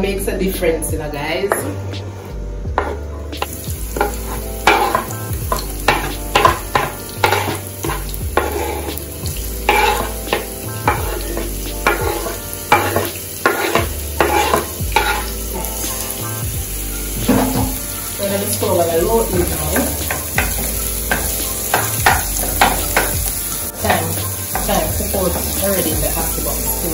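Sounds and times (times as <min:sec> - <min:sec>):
wooden spoon scraping cutting board: 0:02.1 - 0:03.0, 0:05.9 - 0:09.0, 0:09.7 - 0:10.1, 0:11.8 - 0:15.3
vegetables sizzling in oil: 0:02.8 - 0:26.9.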